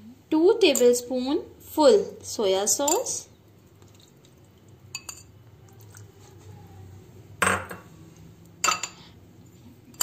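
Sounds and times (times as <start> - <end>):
spoon clinking on glass dishes: 5.0 - 5.9, 8.6 - 9.1.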